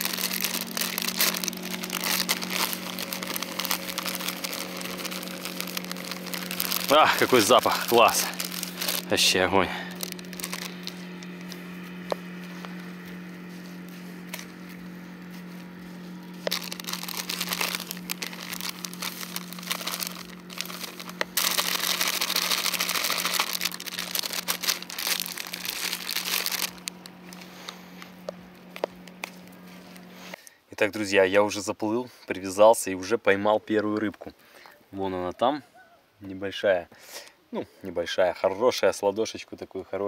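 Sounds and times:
dry bait poured into bucket: 0.0s - 11.6s, 16.3s - 29.5s
hands mixing bait in plastic bucket: 0.0s - 30.4s
plastic bag crinkling: 0.0s - 30.4s
steady low hum: 0.0s - 30.6s.

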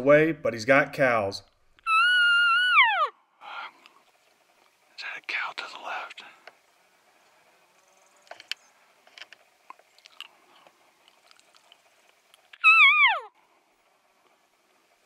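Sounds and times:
faint clicks and rustles: 3.8s - 12.6s.

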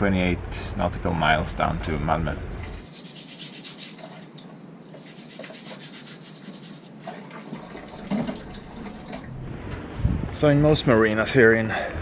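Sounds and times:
running water: 2.6s - 9.4s
scrubbing dishes: 2.7s - 9.3s.

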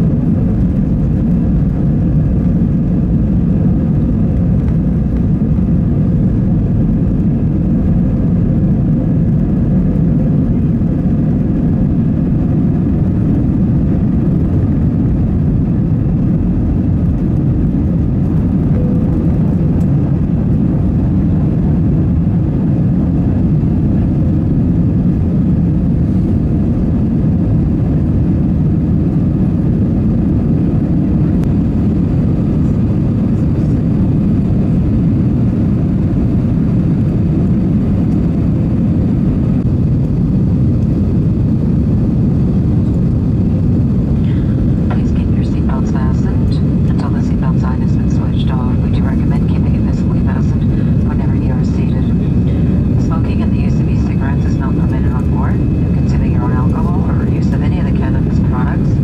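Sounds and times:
jet engines at takeoff: 0.0s - 59.0s
rushing air: 42.6s - 44.9s, 52.0s - 53.0s.

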